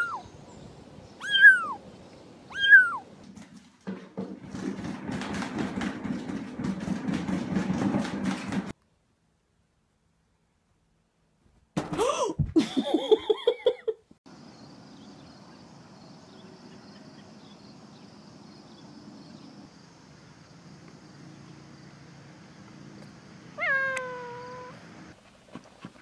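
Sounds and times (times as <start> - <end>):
kitten chirping calls: 0.0 - 0.3, 1.2 - 1.8, 2.5 - 3.1, 23.6 - 24.8
kitten meowing: 1.2 - 1.8, 2.5 - 3.0, 23.6 - 24.8.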